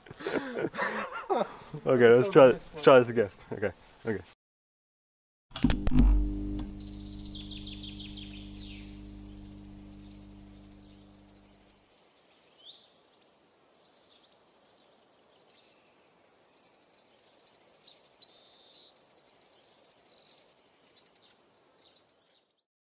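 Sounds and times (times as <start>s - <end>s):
faint outdoor background noise: 0.0s - 4.3s, 7.7s - 22.6s
low steady hum: 5.6s - 11.7s
songbird chirping and trilling: 6.4s - 22.5s.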